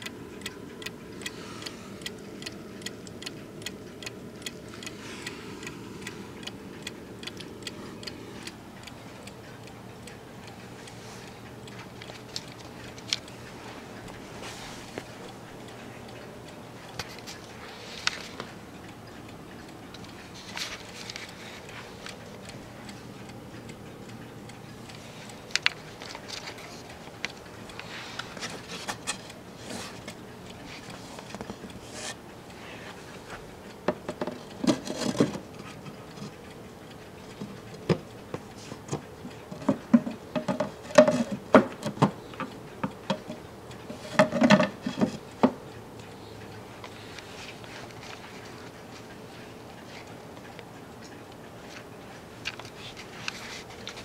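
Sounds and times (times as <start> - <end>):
clock ticking: 0.0 - 54.0.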